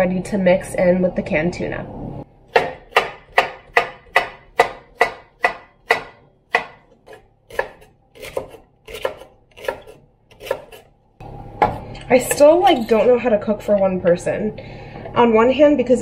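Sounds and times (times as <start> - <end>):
knife chopping on wooden board: 2.5 - 10.9.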